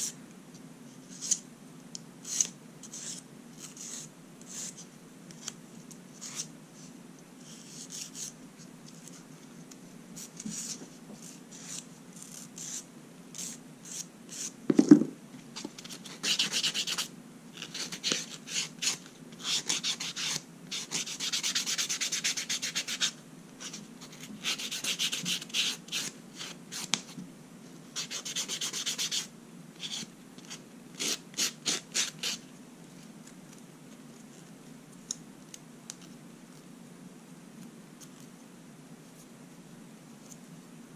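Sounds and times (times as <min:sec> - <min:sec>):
loud thump: 0:14.7 - 0:15.2.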